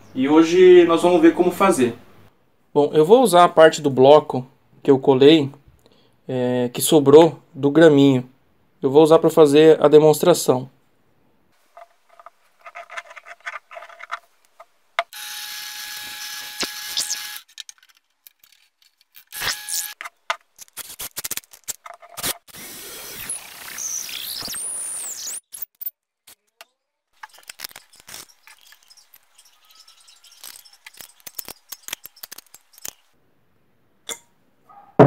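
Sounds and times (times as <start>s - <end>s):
cordless drill running: 15.1s - 17.4s, 19.3s - 20.0s.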